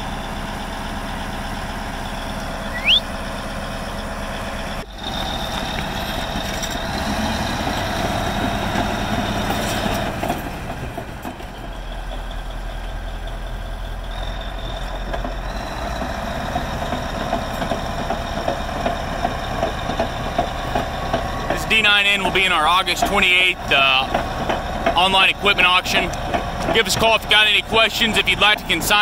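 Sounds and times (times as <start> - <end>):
diesel engine running: 0.0 - 29.0.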